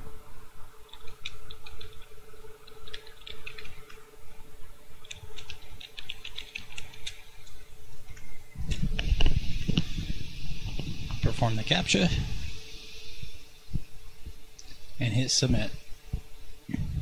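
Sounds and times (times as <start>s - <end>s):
faint steady hum: 0.0s - 17.0s
keyboard typing: 0.9s - 4.0s, 5.0s - 8.3s.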